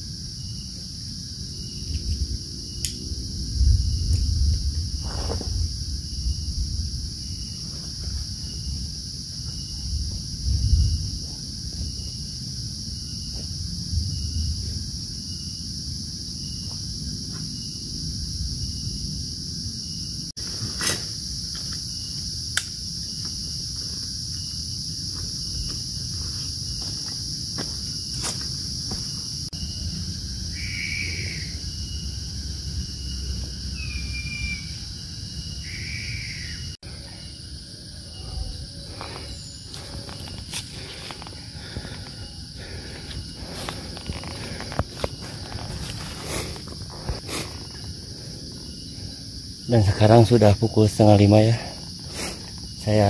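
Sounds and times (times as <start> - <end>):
forest insects droning: 0.0 - 53.0
footsteps crunching on trail: 23.1 - 29.5, 38.6 - 48.0.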